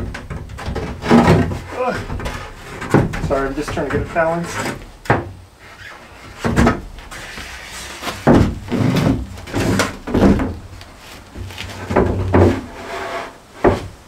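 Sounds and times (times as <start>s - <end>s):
shower base knocking on wood: 0.0s - 4.2s, 8.2s - 10.6s.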